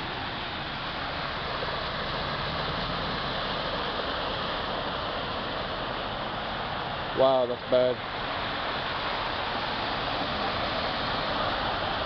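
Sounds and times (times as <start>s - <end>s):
floodwater rushing and splashing: 0.0s - 12.0s
truck tyres ploughing through water: 0.0s - 12.0s.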